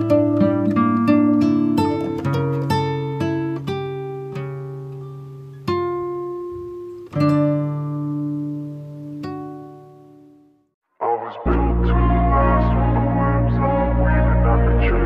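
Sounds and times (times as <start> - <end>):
slow acoustic guitar: 0.0 - 10.6.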